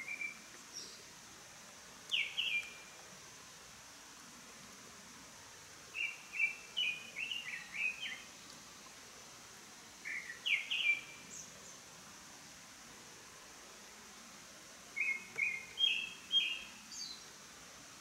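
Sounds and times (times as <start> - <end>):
songbird singing: 0.0 - 1.1, 2.0 - 3.0, 5.9 - 9.0, 9.9 - 11.9, 14.9 - 17.4
background hiss: 0.0 - 18.0.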